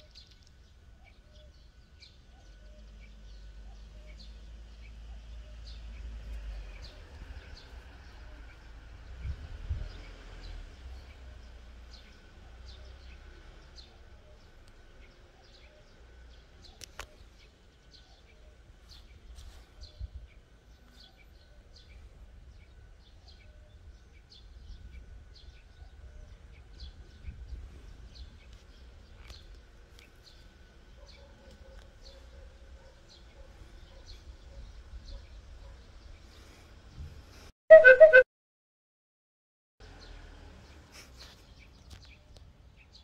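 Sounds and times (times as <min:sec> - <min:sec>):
small birds chirping: 0:00.0 - 0:37.1, 0:39.9 - 0:43.0.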